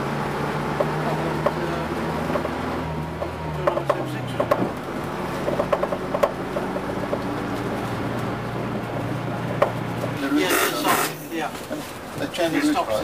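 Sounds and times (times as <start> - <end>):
bus diesel engine drone: 0.0 - 13.0
bodywork rattles and knocks: 0.8 - 10.2.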